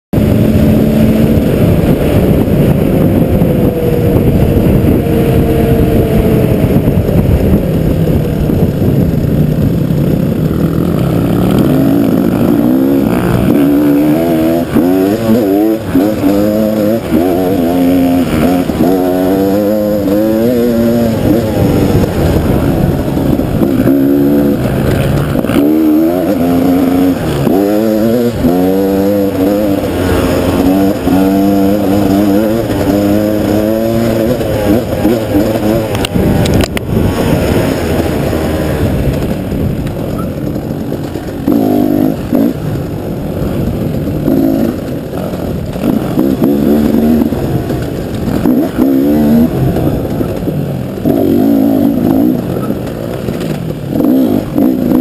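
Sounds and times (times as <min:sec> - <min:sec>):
motorcycle engine: 0:00.1 - 0:55.0
wind noise: 0:00.1 - 0:55.0.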